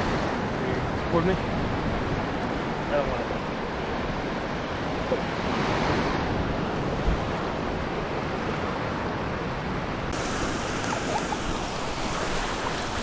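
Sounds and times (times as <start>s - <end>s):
surf breaking on beach: 10.1s - 13.0s.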